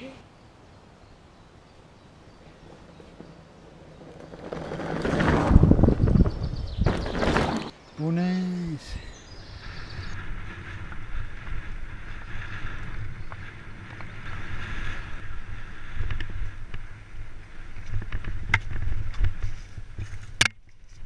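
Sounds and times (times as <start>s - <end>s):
bicycle tyres rumbling: 1.8s - 7.8s, 9.1s - 21.0s
wind buffeting microphone: 1.9s - 7.7s, 8.9s - 20.4s
bicycle knocks and rattles: 2.3s - 7.7s, 17.8s - 21.0s.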